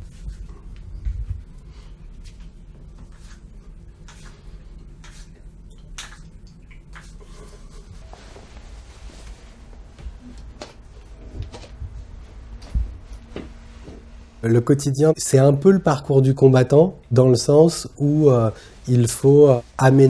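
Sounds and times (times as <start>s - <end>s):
low room hum: 0.0s - 20.0s
clothing rustling: 7.2s - 14.4s.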